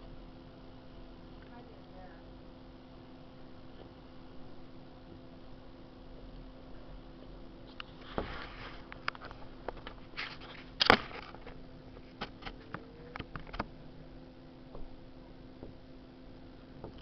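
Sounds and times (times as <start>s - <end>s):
faint steady hum: 0.0s - 17.0s
camcorder handling clicks and rustles: 10.8s - 11.6s.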